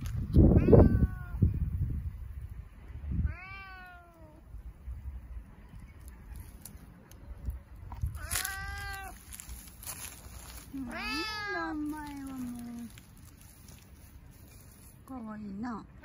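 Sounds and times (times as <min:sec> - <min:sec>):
cat meowing: 0:00.5 - 0:01.5, 0:03.2 - 0:04.4, 0:08.2 - 0:09.3, 0:10.8 - 0:12.8.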